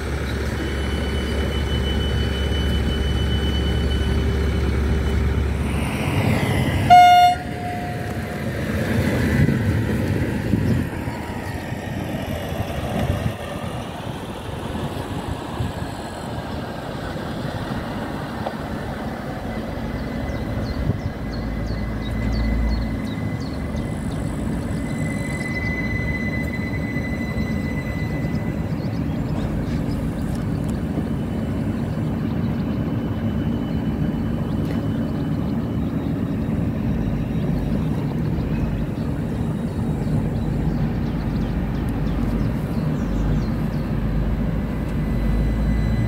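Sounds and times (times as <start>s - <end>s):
train rumbling on rails: 0.0s - 46.0s
train horn toot: 6.8s - 8.5s.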